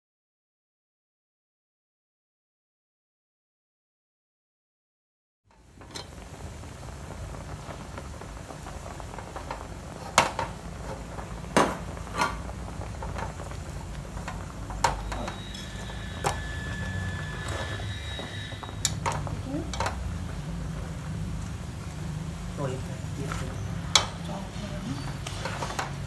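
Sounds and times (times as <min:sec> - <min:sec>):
water boiling in a pot: 0:05.5 - 0:26.0.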